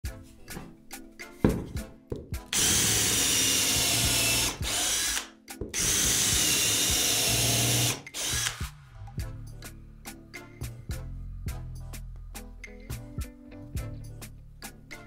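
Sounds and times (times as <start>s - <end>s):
cordless drill boring into wood: 2.5s - 8.7s.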